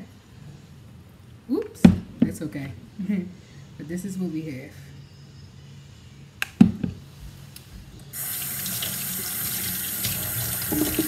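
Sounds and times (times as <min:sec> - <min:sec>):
tap running into sink: 0:08.2 - 0:11.0
bowl knocking on counter: 0:10.7 - 0:11.0.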